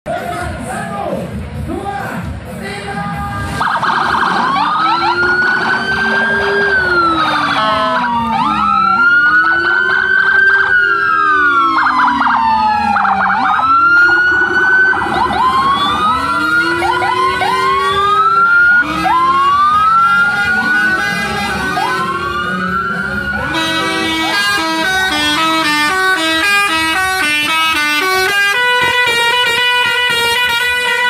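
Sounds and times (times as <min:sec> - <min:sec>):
police sirens wailing: 0:03.1 - 0:31.0
siren yelping: 0:03.5 - 0:30.0.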